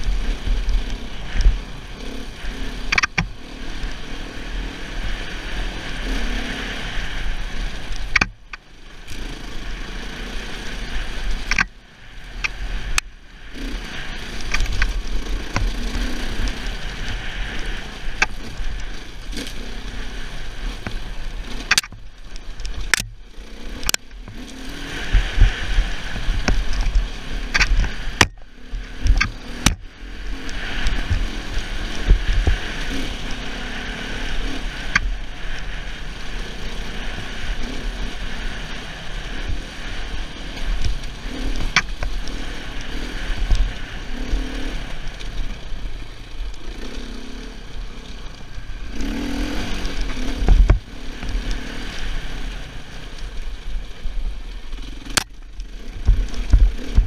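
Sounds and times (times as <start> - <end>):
motorcycle running at low speed: 0.0 - 57.0.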